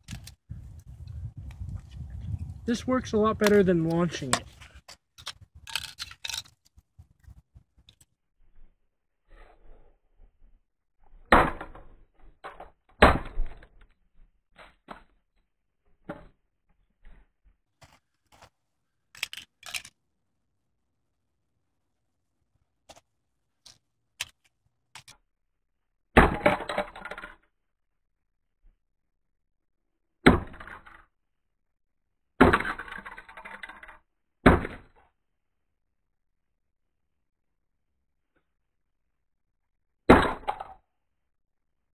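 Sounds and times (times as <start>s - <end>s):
plastic pieces clattering on concrete: 5.2s - 6.8s, 19.1s - 20.0s.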